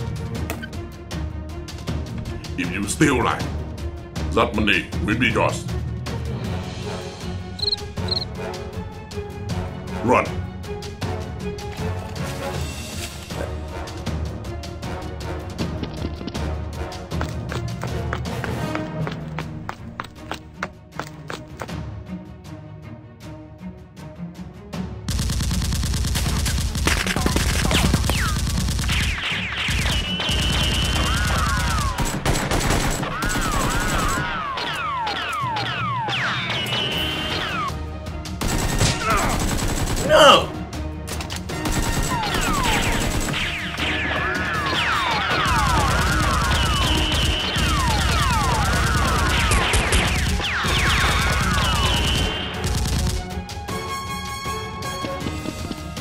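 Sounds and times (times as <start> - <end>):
rapid automatic gunfire effects: 25.1 - 35.7, 38.4 - 40.2, 41.6 - 53.4
bullets whizzing: 41.9 - 53.0.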